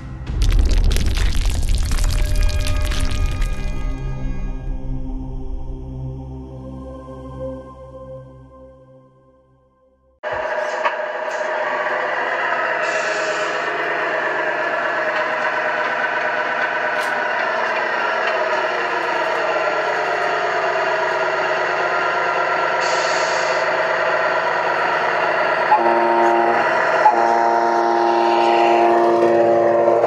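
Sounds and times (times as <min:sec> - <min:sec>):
simulated diesel truck engine: 0:10.2 - 0:30.0
air brake hiss: 0:12.8 - 0:13.8, 0:22.8 - 0:23.8
truck horn blasts: 0:25.6 - 0:30.0.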